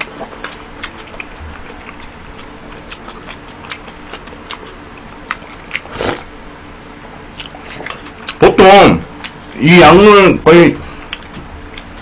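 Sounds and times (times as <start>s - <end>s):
loud slurp: 5.8s - 6.3s.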